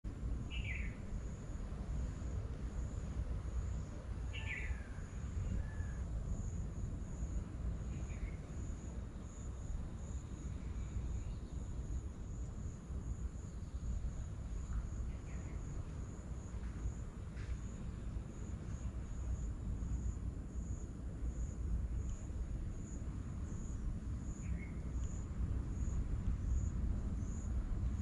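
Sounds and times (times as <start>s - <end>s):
insects chirping: 0.1s - 28.0s
faint small bird calls: 0.5s - 1.0s, 3.8s - 6.1s.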